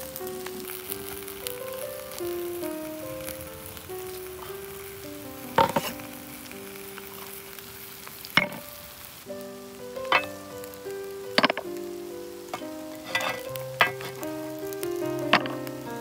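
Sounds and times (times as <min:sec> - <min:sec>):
food sizzling in a pan: 0:00.0 - 0:16.0
soft background music: 0:00.0 - 0:16.0
wooden spatula knocking: 0:05.6 - 0:05.9.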